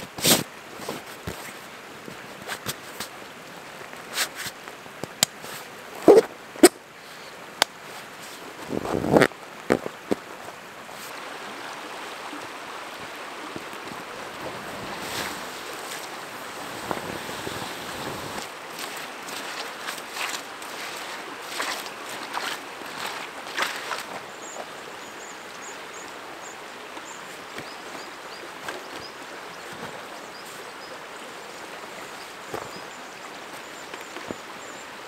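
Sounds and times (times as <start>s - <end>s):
river running: 0.0s - 35.0s
canvas rustling: 8.2s - 10.2s, 14.3s - 24.6s.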